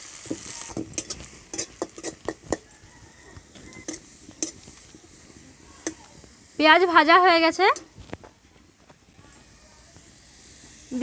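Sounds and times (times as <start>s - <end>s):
onions sizzling in oil: 0.0s - 11.0s
metal spatula scraping a pan: 0.2s - 2.8s, 3.4s - 6.0s.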